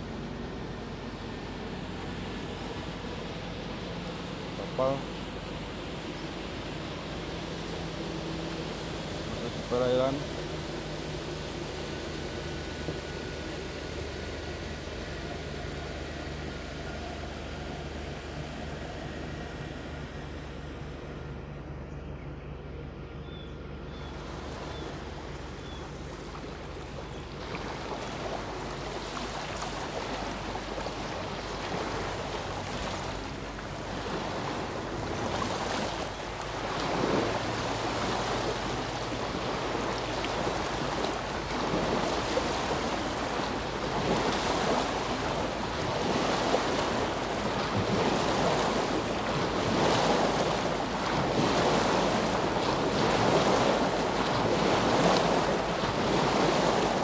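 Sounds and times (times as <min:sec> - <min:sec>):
small waves washing against rocks: 0:27.4 - 0:57.0.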